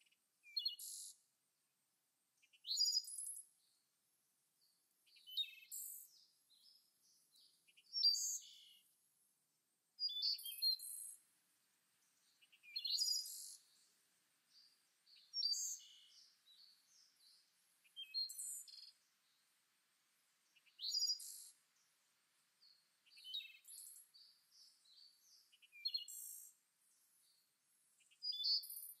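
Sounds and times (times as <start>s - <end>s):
soft bird chirps: 0.0s - 1.3s, 2.4s - 3.9s, 4.6s - 9.0s, 10.0s - 29.0s
songbird whistles and trills: 0.4s - 1.2s, 2.5s - 3.5s, 5.2s - 6.8s, 7.8s - 8.8s, 10.0s - 11.2s, 12.5s - 13.9s, 15.1s - 19.0s, 20.6s - 21.6s, 23.1s - 26.5s, 28.0s - 29.0s.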